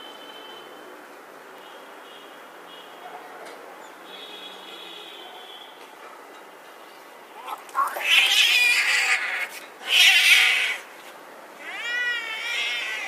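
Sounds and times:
cat yowling: 0:07.4 - 0:10.9, 0:11.6 - 0:13.0
cats screeching: 0:07.4 - 0:10.9, 0:11.6 - 0:13.0.

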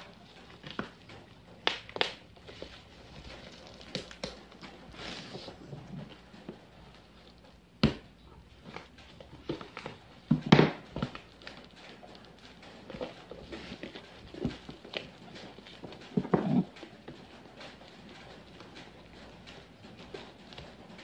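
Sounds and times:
plastic wrapping crinkling and tearing: 0:01.6 - 0:05.5.

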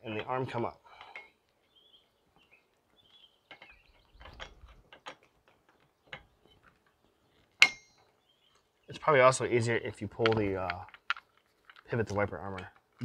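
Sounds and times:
faint metallic clicks and knocks: 0:02.4 - 0:09.1, 0:10.0 - 0:13.0.

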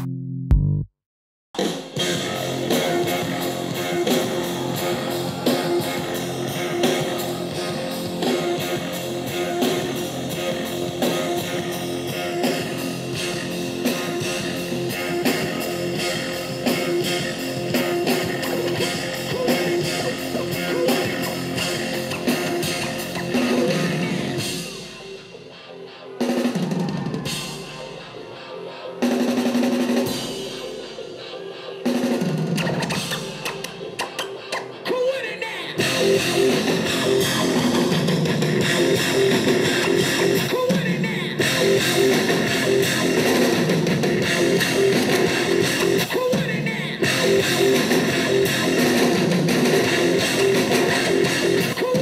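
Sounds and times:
drum kit playing: 0:01.6 - 0:25.2, 0:35.8 - 0:52.0
dj mix music: 0:01.6 - 0:52.0.

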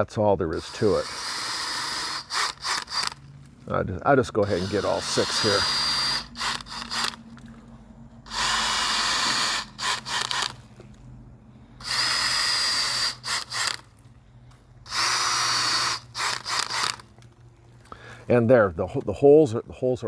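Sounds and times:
cordless drill whining: 0:00.5 - 0:03.2, 0:04.4 - 0:07.2, 0:08.3 - 0:10.6, 0:11.8 - 0:13.9, 0:14.8 - 0:17.1
drill blips: 0:00.5 - 0:03.2, 0:04.4 - 0:07.2, 0:08.2 - 0:10.6, 0:11.8 - 0:13.9, 0:14.8 - 0:17.1.

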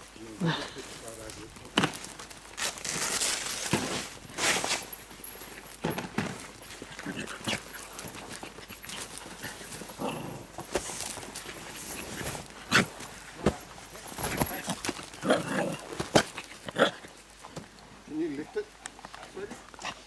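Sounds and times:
paws scuffling on dirt: 0:00.0 - 0:20.0
dog vocal noises: 0:06.5 - 0:13.3.

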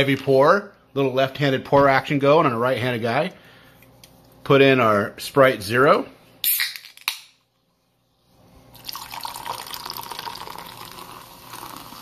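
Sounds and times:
soda pouring and fizzing over ice: 0:08.7 - 0:12.0.

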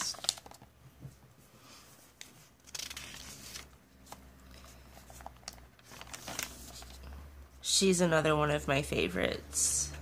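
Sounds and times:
paper page turning: 0:00.0 - 0:00.7, 0:02.2 - 0:07.1.

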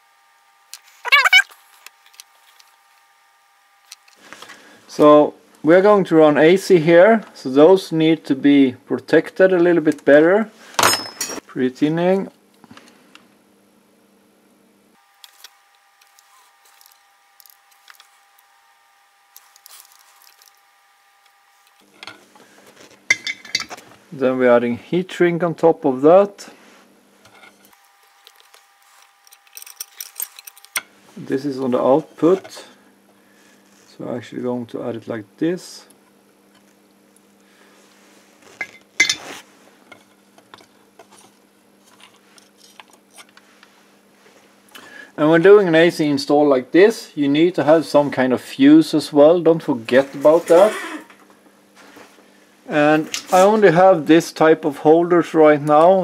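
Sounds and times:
faint steady hum: 0:00.0 - 0:56.0
hands handling wires and parts: 0:00.8 - 0:02.8, 0:15.2 - 0:18.4, 0:19.3 - 0:20.7, 0:27.2 - 0:30.9, 0:38.4 - 0:43.7
soldering iron clinking down: 0:23.1 - 0:23.8, 0:38.6 - 0:39.4.

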